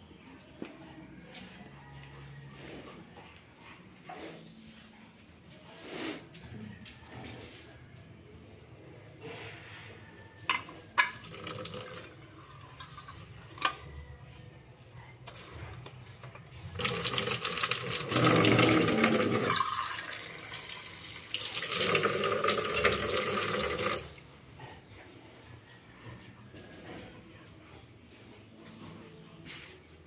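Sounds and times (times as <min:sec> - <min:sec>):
water running from a tap: 0:11.3 - 0:12.1, 0:16.8 - 0:24.2.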